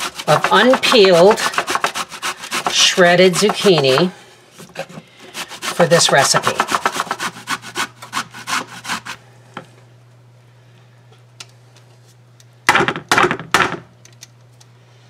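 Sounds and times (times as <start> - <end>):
grater knocking on wooden board: 0.0 - 4.1, 5.6 - 7.3
metal grater rasping through zucchini: 0.0 - 4.1, 4.8 - 9.2.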